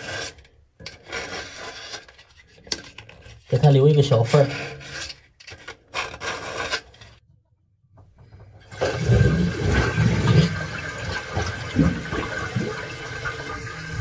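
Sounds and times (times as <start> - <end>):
knife scraping sealant: 0.0 - 7.2
toilet flushing: 8.5 - 14.0.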